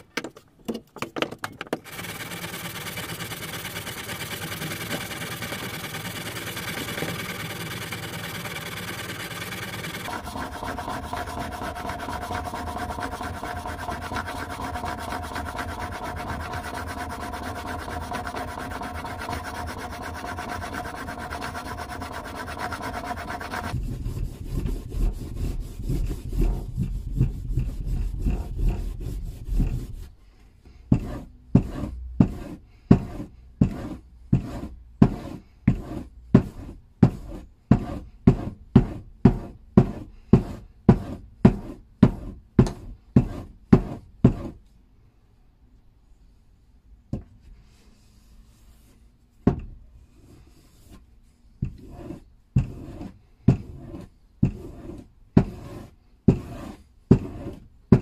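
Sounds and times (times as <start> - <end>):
compound rubbing on strop: 1.9 - 30.2
chisel scraping on sharpening stone: 10.1 - 23.8.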